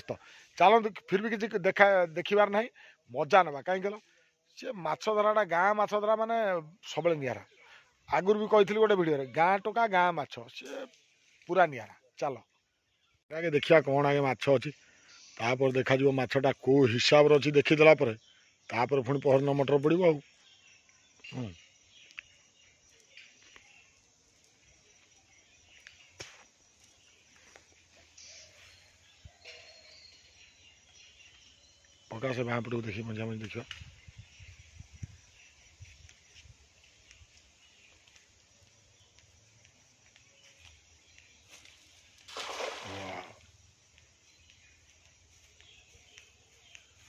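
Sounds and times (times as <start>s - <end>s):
cast net splashing on water: 42.2s - 43.4s.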